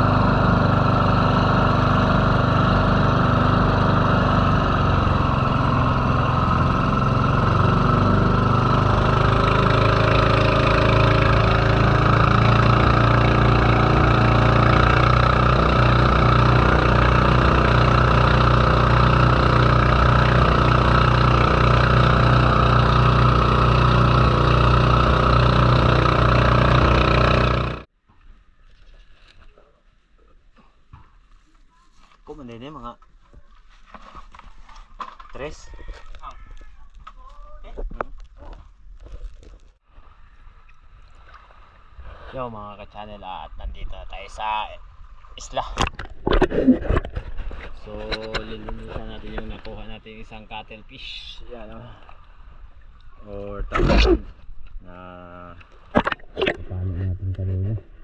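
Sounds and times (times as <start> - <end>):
boat engine running: 0.0 - 27.9, 55.6 - 58.0.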